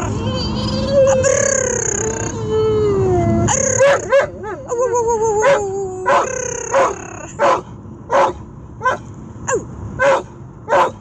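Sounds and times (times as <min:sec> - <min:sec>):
dog yelping: 0:00.0 - 0:02.4, 0:03.4 - 0:11.0
dog whining: 0:00.0 - 0:07.6.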